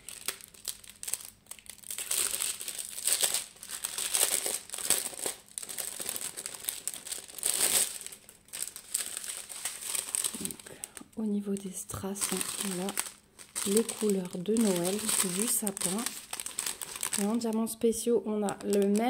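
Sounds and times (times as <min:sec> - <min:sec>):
plastic bags crinkling: 0:00.0 - 0:19.0.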